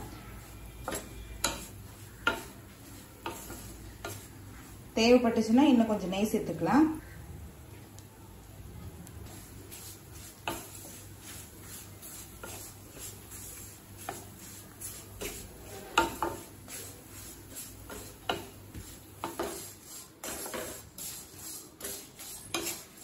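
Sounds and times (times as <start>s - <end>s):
spatula scraping and clacking on pan: 0.5s - 4.8s, 9.3s - 23.0s.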